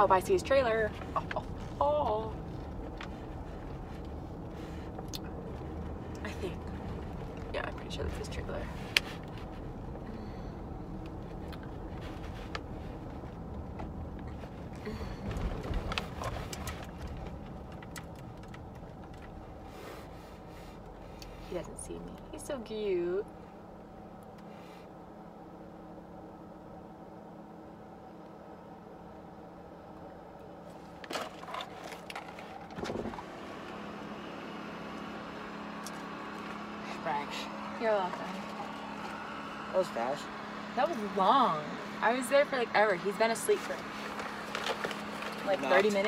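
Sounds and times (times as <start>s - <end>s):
car engine and tyres rumbling: 0.0s - 46.0s
rustling: 10.9s - 21.5s.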